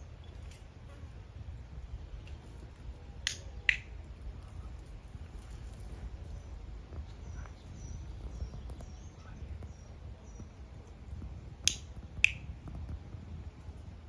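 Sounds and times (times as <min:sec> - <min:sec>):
low outdoor rumble: 0:00.0 - 0:14.0
sharp clicks: 0:03.2 - 0:04.0, 0:11.6 - 0:13.0.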